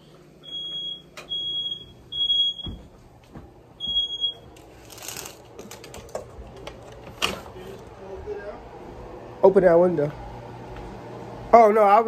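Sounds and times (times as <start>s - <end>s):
smoke alarm beeping: 0.4s - 2.9s, 3.8s - 4.6s.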